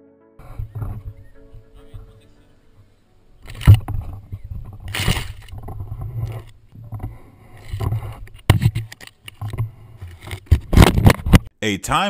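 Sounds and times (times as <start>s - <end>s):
rustling of leafy brush: 0.4s - 8.8s
low wind rumble on microphone: 3.4s - 8.7s.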